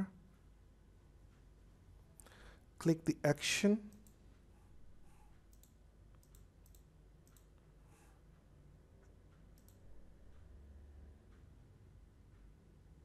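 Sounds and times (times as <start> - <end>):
computer mouse clicks: 5.4 - 7.7, 9.0 - 10.4.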